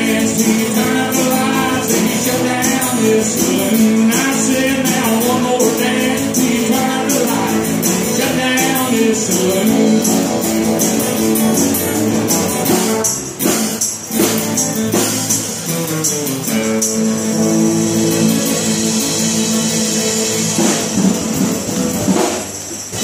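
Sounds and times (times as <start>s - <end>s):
person singing: 0.0s - 10.6s
country rock band playing: 0.0s - 23.0s
tambourine jingling: 0.0s - 23.0s.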